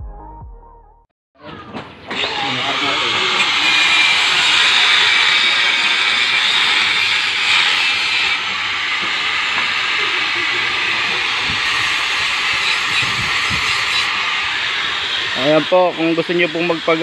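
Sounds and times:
angle grinder cutting steel: 0:02.1 - 0:17.0.

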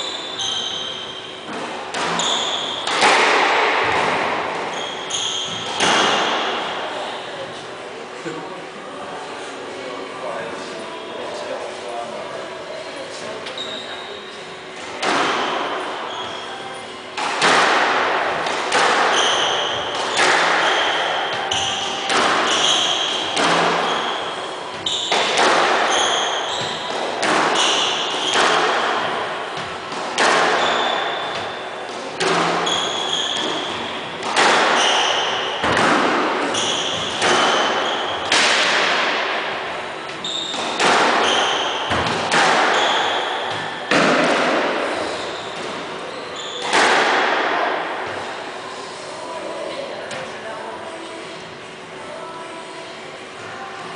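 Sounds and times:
squash ball hitting rackets and walls: 0:00.0 - 0:07.2, 0:14.9 - 0:48.5
shoes squeaking on wooden floor: 0:25.9 - 0:27.0, 0:32.6 - 0:34.0, 0:45.0 - 0:46.7.

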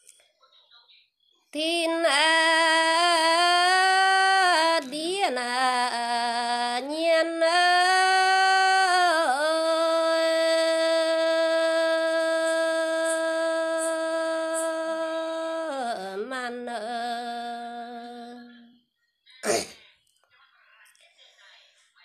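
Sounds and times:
woman singing a folk song: 0:01.6 - 0:18.8.

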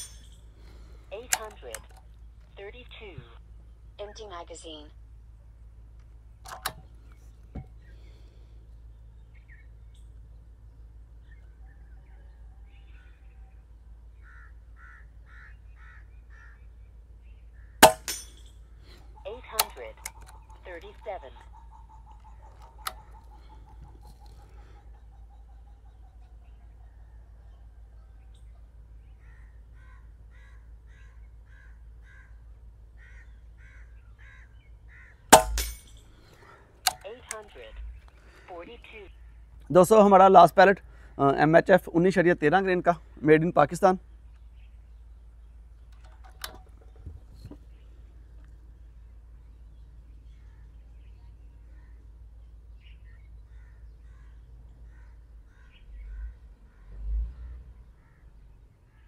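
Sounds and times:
bird calling: 0:00.0 - 0:41.5, 0:42.7 - 0:59.0
faint low hum: 0:00.0 - 0:57.4
air rifle shot: 0:17.8 - 0:18.4, 0:35.3 - 0:35.8.

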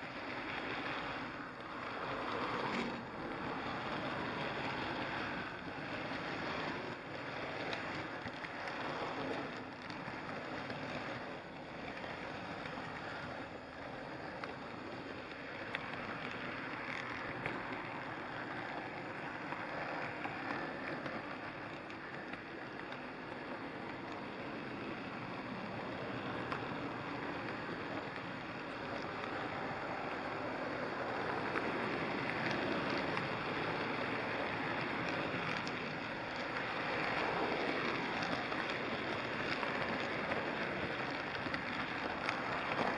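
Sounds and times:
model train rumbling on track: 0:00.0 - 0:42.9.

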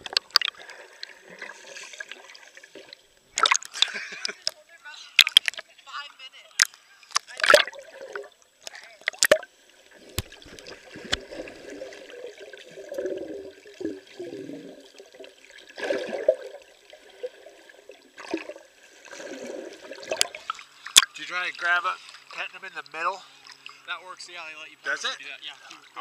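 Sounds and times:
muffled underwater water sloshing: 0:07.2 - 0:23.8.

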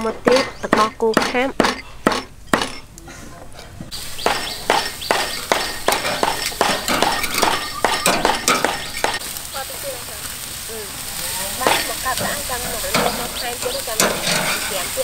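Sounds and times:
meat sizzling on grill: 0:03.9 - 0:15.0
metal tongs clicking on grill: 0:12.9 - 0:15.0.

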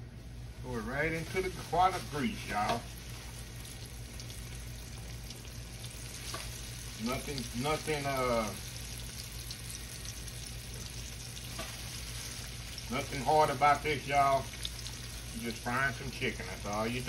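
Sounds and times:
person speaking: 0:00.6 - 0:02.9, 0:07.0 - 0:08.6, 0:12.9 - 0:14.5
oil sizzling in skillet: 0:00.6 - 0:17.0.

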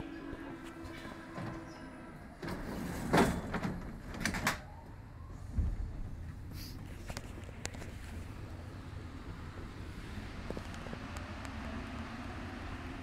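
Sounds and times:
train rumbling: 0:00.0 - 0:13.0
train doors knocking and clattering: 0:00.3 - 0:04.7.

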